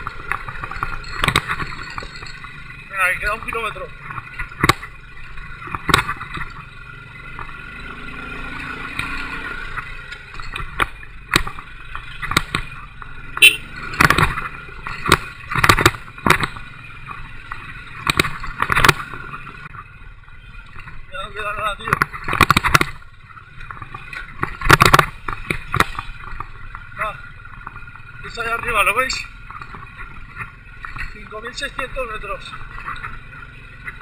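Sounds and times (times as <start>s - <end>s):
knocks and rattles on rough road: 0.0s - 34.0s
motorcycle engine running: 0.0s - 34.0s.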